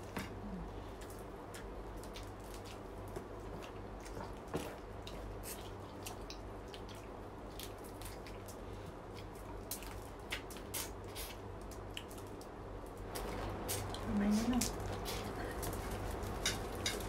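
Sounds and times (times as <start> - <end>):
steady low hum: 0.0 - 17.0
chewing and lip smacks: 1.0 - 12.5.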